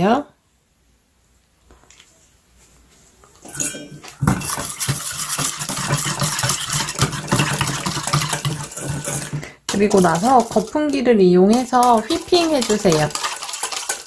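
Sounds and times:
whisk clinking in metal bowl: 0:03.5 - 0:14.0.

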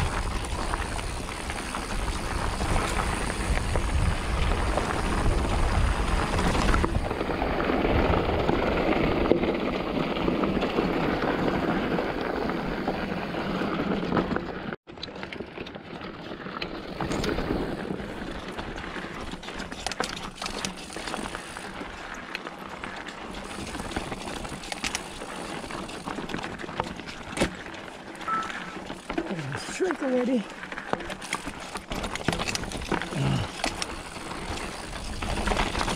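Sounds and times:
wind on microphone: 0:00.0 - 0:08.9
bike clicks and rattles: 0:00.0 - 0:35.9.

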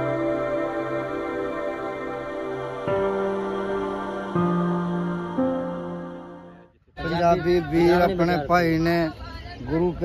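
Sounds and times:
soft background music chords: 0:00.0 - 0:06.8.

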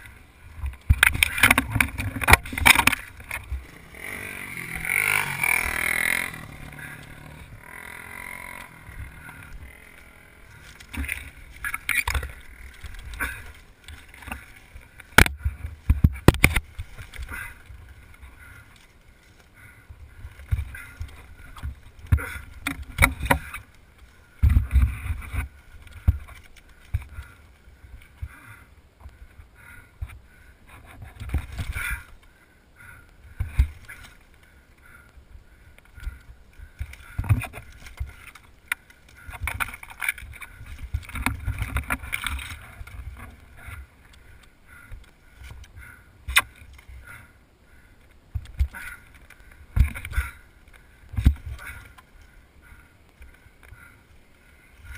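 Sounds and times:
branches and plastic clattering: 0:00.0 - 0:28.4, 0:30.0 - 0:32.4, 0:35.7 - 0:47.3, 0:48.0 - 0:54.9.

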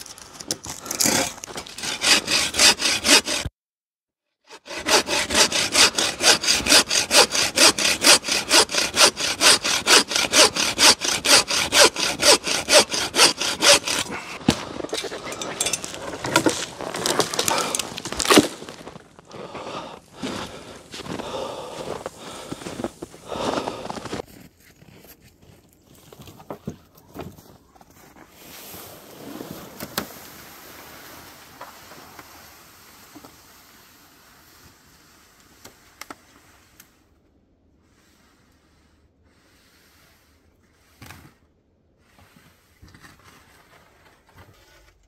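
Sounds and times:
wood cracking: 0:00.0 - 0:03.5, 0:04.7 - 0:19.9
hand saw cutting wood: 0:00.0 - 0:03.6, 0:04.5 - 0:18.8, 0:19.4 - 0:24.2
scraping and knocks: 0:04.8 - 0:19.0.

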